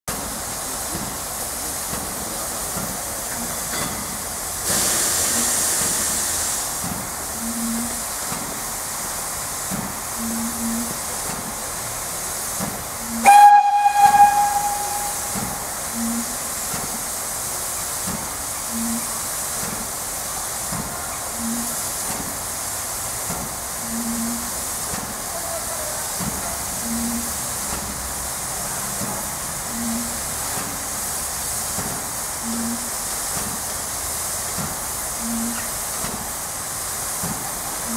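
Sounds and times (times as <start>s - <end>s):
sharp hiss of escaping steam: 0.1s - 37.9s
steam locomotive hissing: 0.1s - 37.9s
short low tone: 13.3s - 16.4s.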